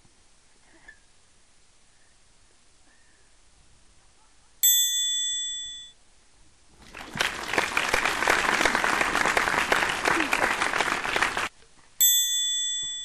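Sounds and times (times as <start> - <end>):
bright bell ding: 4.6 - 6.0, 12.0 - 13.0
crowd applause: 6.8 - 11.5.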